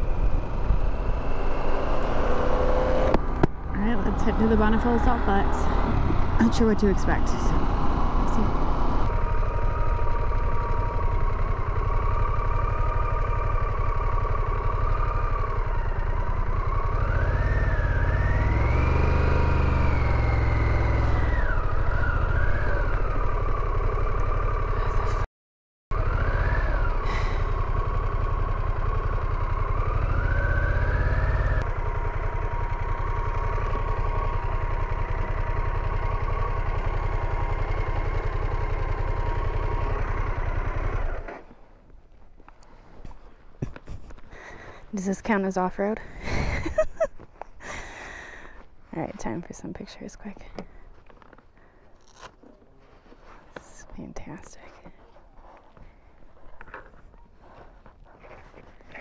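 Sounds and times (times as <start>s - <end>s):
motorcycle engine running: 0.0s - 25.2s, 25.9s - 41.8s.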